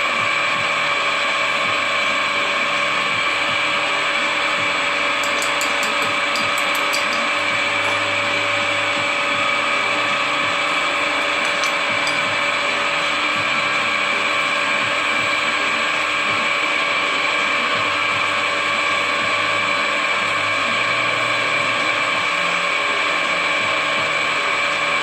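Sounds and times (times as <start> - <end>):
drill press motor whine: 0.0 - 25.0
low hum: 4.6 - 15.0.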